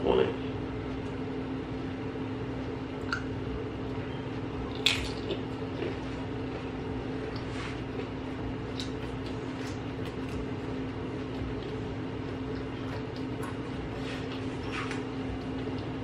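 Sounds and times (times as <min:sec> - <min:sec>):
steady low hum: 0:00.0 - 0:16.0
chip crunching and chewing: 0:04.6 - 0:06.1, 0:07.2 - 0:16.0.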